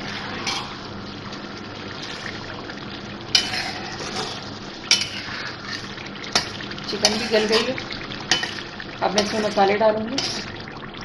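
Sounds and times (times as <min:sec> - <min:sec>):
steady sizzle: 0:00.0 - 0:11.0
spatula stirring food: 0:03.3 - 0:10.7.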